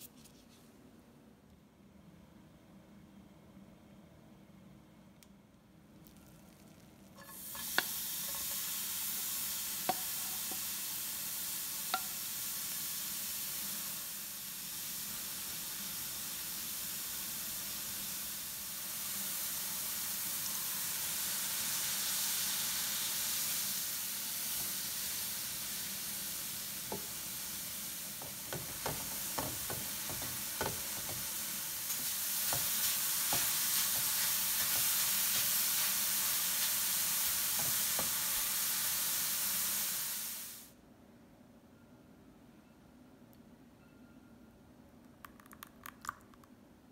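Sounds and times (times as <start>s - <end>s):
beetroot sizzling in frying pan: 6.1s - 40.7s
wooden spatula knocking on pan: 28.2s - 31.3s.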